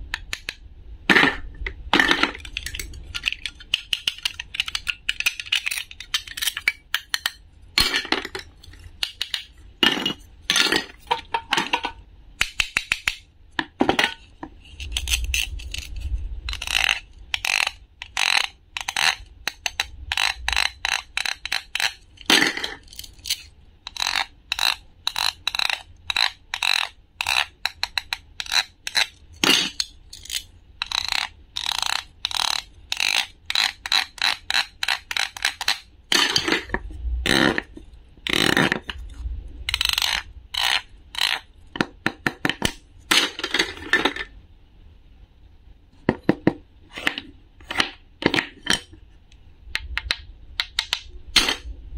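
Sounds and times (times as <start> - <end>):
plastic toy pieces clicking: 2.0 - 9.5, 11.1 - 13.2, 16.5 - 37.7, 39.7 - 44.2.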